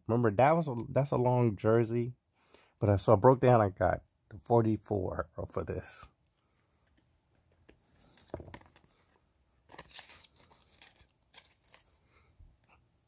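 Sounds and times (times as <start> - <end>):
fabric and cardboard tag rustling: 6.2 - 12.8.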